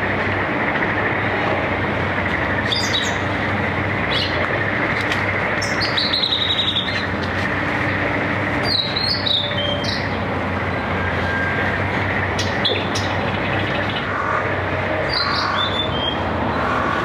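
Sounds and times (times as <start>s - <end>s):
background noise with low hum: 0.0s - 17.0s
flycatcher singing: 5.6s - 7.2s, 8.6s - 10.2s, 15.0s - 16.3s.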